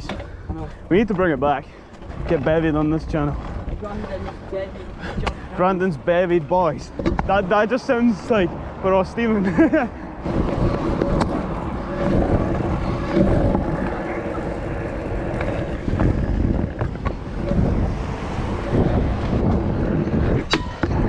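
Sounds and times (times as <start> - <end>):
scooter clacking over bumps: 0.0 - 8.3, 9.1 - 21.0
scooter wheels rolling on wet tarmac: 0.0 - 21.0
wind on microphone: 9.4 - 21.0.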